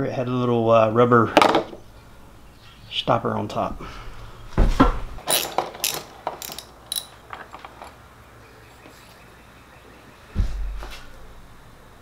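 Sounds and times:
hand ratchet clicking: 0:05.3 - 0:07.1.

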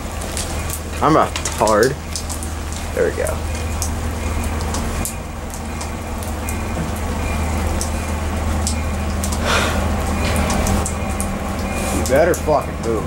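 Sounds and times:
constant low hum: 0:00.0 - 0:13.0
steady rain: 0:00.0 - 0:13.0
drops ticking close by: 0:00.1 - 0:13.0.

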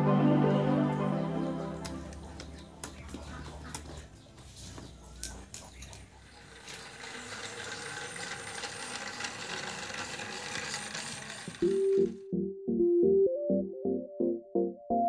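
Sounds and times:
toy motor whirring and rattling: 0:05.2 - 0:12.2.

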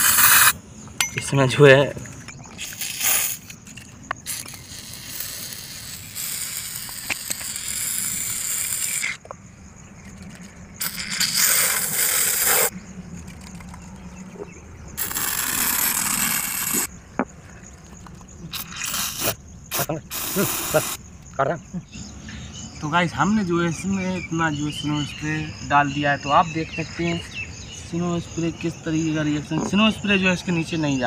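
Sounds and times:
aerosol can hissing: 0:00.0 - 0:00.6, 0:02.6 - 0:03.6, 0:04.2 - 0:09.2, 0:10.8 - 0:12.7, 0:15.0 - 0:16.9, 0:18.5 - 0:21.0.

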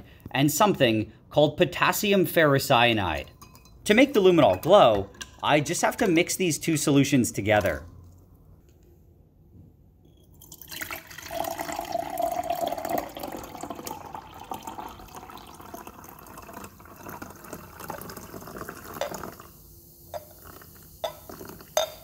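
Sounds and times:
liquid pouring into glass beaker: 0:10.2 - 0:22.0.

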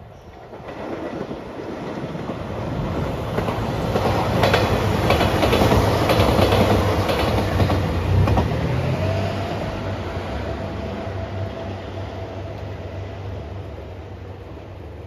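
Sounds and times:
diesel train passing: 0:00.0 - 0:15.0
wheels clicking over rail joints: 0:00.3 - 0:08.8.

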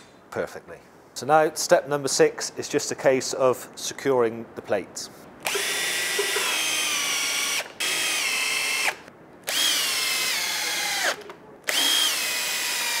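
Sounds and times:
cordless drill driving screws: 0:05.4 - 0:13.0.

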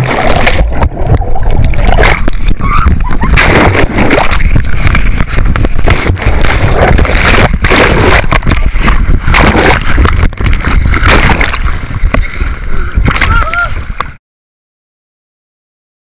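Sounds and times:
heavy low rumble: 0:00.0 - 0:14.1
water sloshing and splashing: 0:00.0 - 0:14.2.

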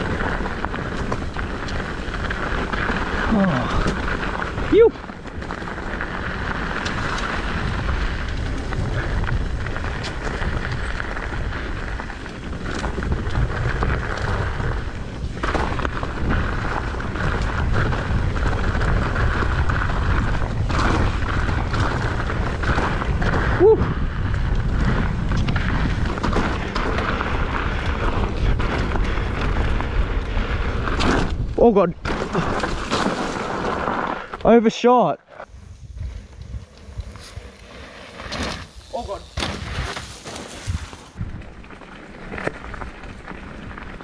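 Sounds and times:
wind buffeting microphone: 0:00.0 - 0:32.9, 0:35.4 - 0:37.8
bike rattling and knocking: 0:00.0 - 0:34.4
tyres rumbling over dirt: 0:00.0 - 0:34.6, 0:35.4 - 0:44.0.

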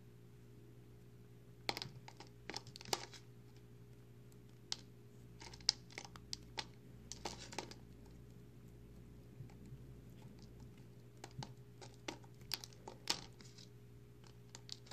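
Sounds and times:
soap flakes crackling in fingers: 0:04.3 - 0:14.9.

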